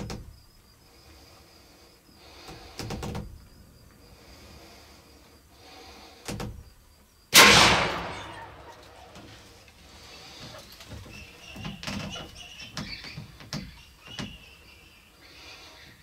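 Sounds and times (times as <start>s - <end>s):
gunshot with echo: 7.4s - 9.0s.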